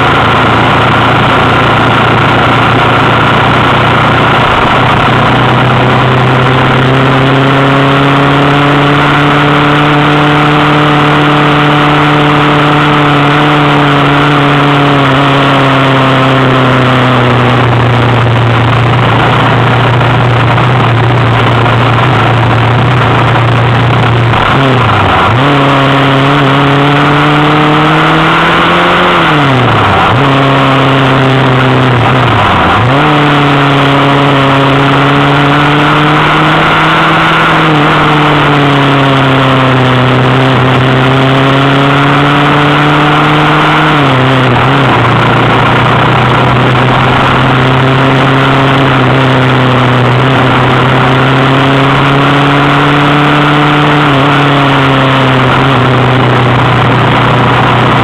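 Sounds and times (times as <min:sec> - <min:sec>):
motorcycle engine running: 0:00.0 - 0:58.0
wind rush on microphone: 0:00.0 - 0:58.0.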